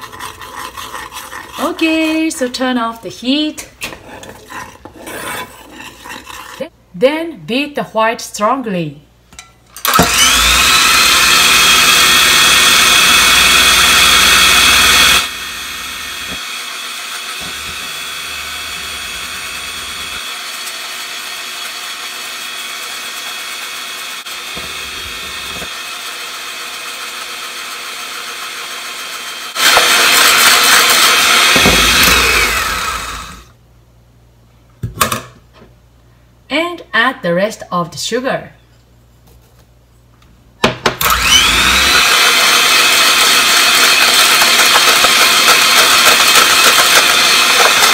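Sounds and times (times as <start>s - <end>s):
electric hand mixer whipping: 0.0s - 1.9s, 9.8s - 33.5s, 41.0s - 47.9s.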